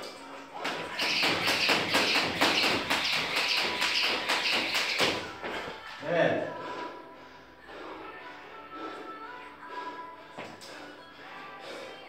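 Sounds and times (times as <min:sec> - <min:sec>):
jump rope slapping floor mat: 0:00.0 - 0:05.7.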